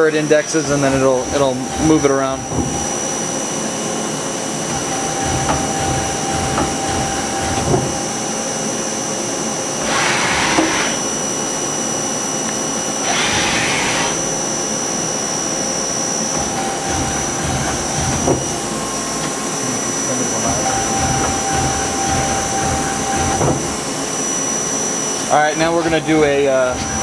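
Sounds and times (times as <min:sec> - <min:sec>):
lathe spindle whine: 0:00.0 - 0:27.0
rushing hissing bursts: 0:09.8 - 0:11.0.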